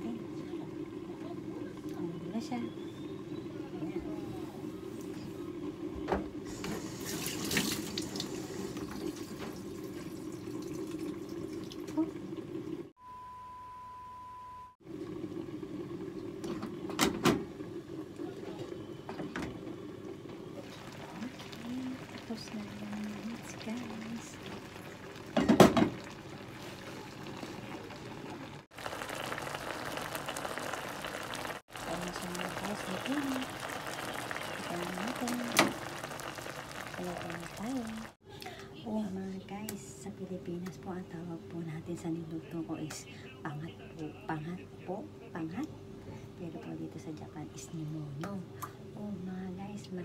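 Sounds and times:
pot bubbling and crackling: 0:00.0 - 0:13.0, 0:14.8 - 0:38.2
running water: 0:06.4 - 0:12.9, 0:19.7 - 0:38.2.

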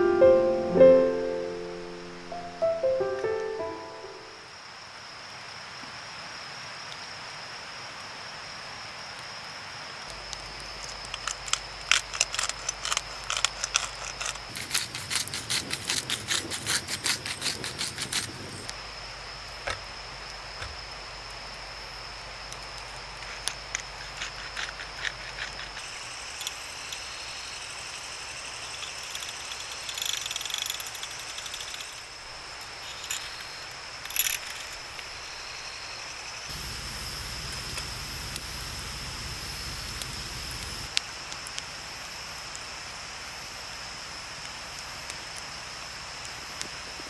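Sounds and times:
rustle: 0:04.2 - 0:47.0
small clicks and knocks: 0:10.3 - 0:14.8
high-pitched insect chirring: 0:23.3 - 0:40.9.

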